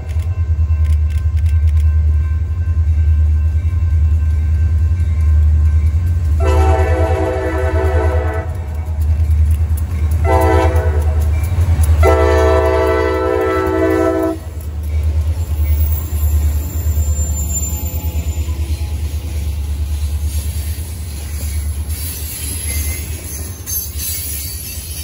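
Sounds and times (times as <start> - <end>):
locomotive air horn blasts: 6.4 - 8.6, 10.2 - 11.2, 12.0 - 14.5.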